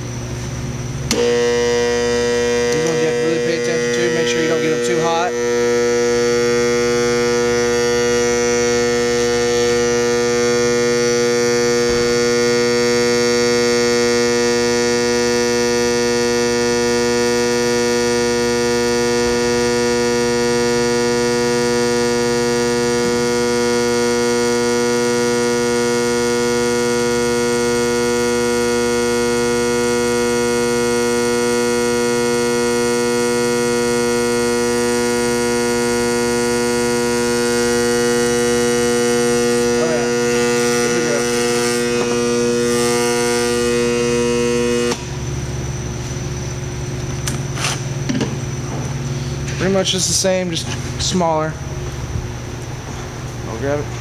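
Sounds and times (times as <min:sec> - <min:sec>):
bearing heater humming: 0:00.0 - 0:54.0.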